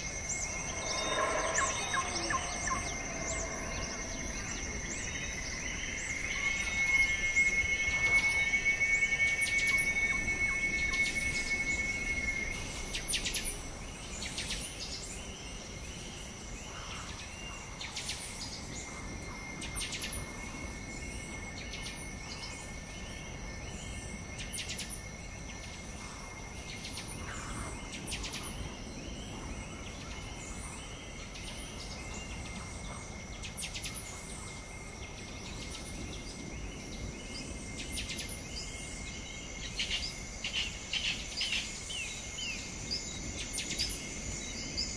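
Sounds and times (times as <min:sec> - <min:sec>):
high-pitched insect drone: 0:00.0 - 0:44.9.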